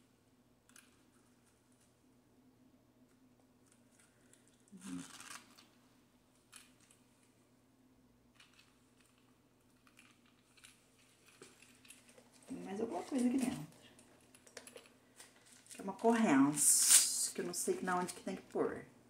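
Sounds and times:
handbag rustling and clicking: 3.7 - 5.7, 8.4 - 15.8.

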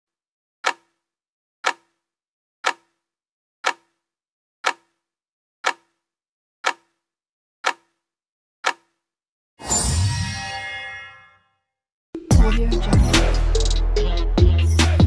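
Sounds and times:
clock ticks with low ring: 0.6 - 1.0, 1.6 - 2.0, 2.6 - 3.0, 3.6 - 4.0, 4.6 - 5.0, 5.6 - 5.9, 6.6 - 7.0, 7.6 - 7.9.

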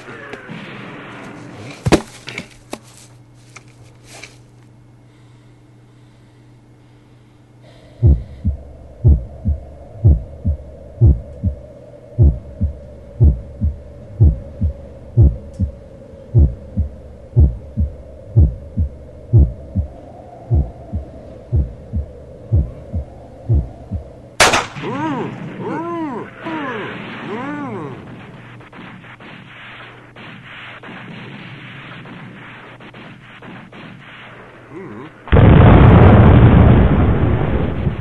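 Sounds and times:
steady hum: 0.0 - 38.0
slow heartbeat: 7.9 - 24.2
loud gunshot-like bang: 24.4 - 24.8.

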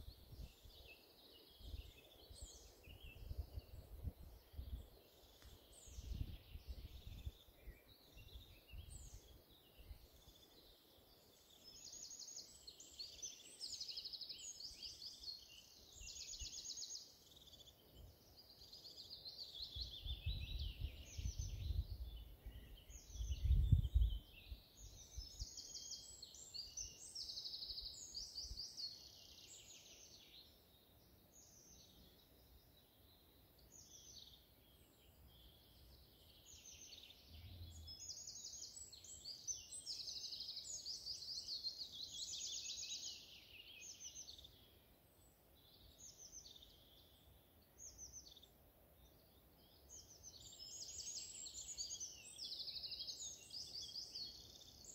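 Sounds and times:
songbirds singing: 0.0 - 54.9.

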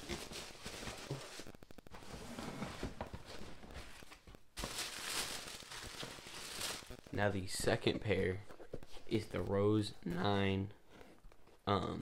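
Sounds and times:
tissue paper rustling: 0.0 - 7.1.

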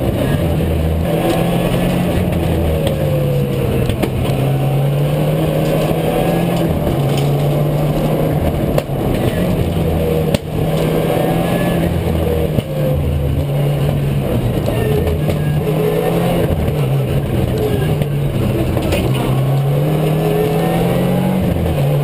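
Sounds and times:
rally car engine running hard: 0.0 - 22.0
tyre and road noise: 0.0 - 22.0.

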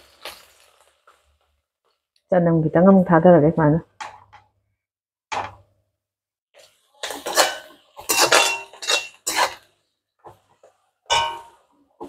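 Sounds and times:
metal ladle scraping a wok: 7.0 - 9.7.

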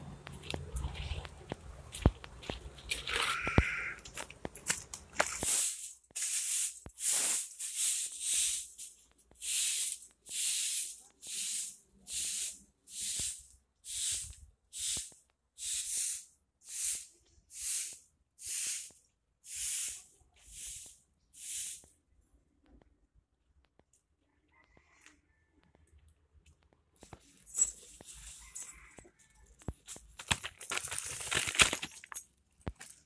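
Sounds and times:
broom sweeping earth: 5.3 - 21.9.

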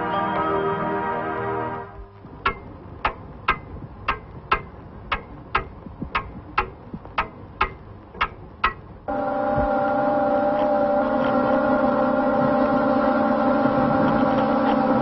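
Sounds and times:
mechanical clock ticking: 1.9 - 9.7.

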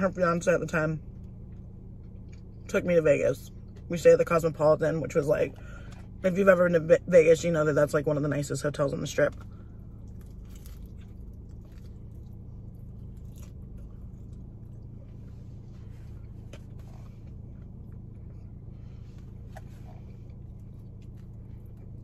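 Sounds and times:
steady low hum: 0.0 - 22.0
person chewing pizza: 1.0 - 2.7, 5.5 - 6.2, 9.3 - 22.0.

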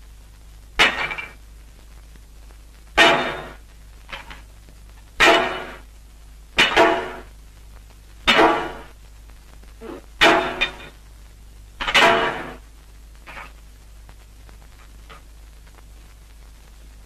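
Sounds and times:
steady low hum: 0.0 - 17.0
sharp metallic clangs: 3.0 - 3.6, 5.2 - 5.8, 6.6 - 7.2, 8.3 - 8.9, 9.8 - 10.9, 11.8 - 12.6.

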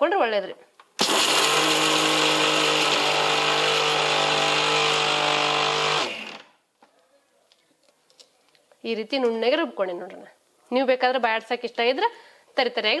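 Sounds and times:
mixer grinder motor hum: 1.0 - 6.5.

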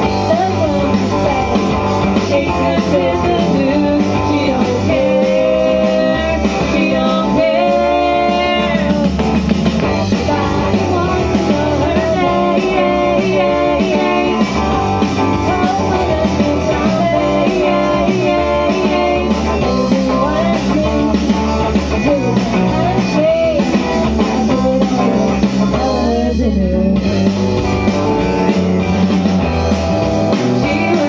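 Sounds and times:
rock song with guitar: 0.0 - 31.0.

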